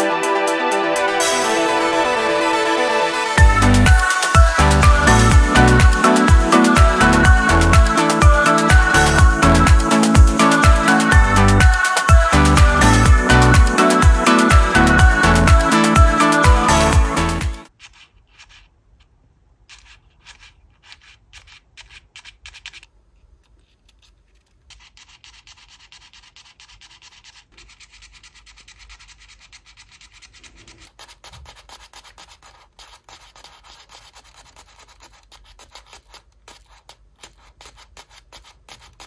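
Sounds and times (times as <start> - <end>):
paper toys clicking: 17.7 - 39.0.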